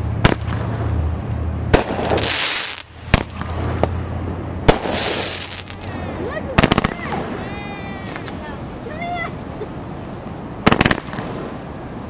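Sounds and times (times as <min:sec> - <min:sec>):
firework shells bursting: 0:01.7 - 0:03.9, 0:04.6 - 0:06.0, 0:10.6 - 0:11.6
firework hissing crackle: 0:01.7 - 0:04.0, 0:04.6 - 0:12.0.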